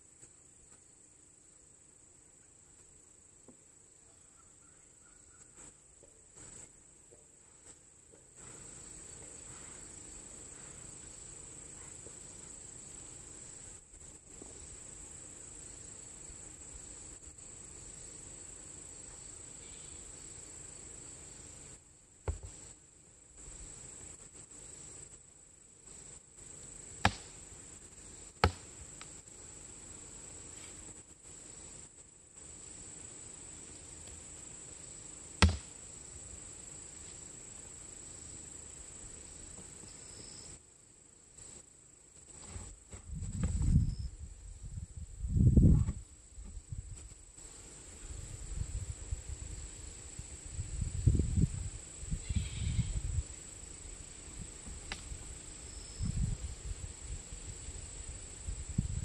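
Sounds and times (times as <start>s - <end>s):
insects chirring: 0.0s - 59.0s
knocks on wooden beehive: 22.2s - 22.5s, 28.4s - 28.6s, 35.4s - 35.7s.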